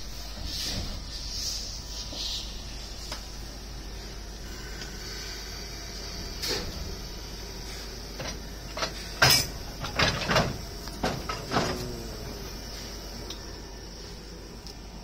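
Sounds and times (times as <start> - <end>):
railway coupling metal clanks: 8.2 - 11.8.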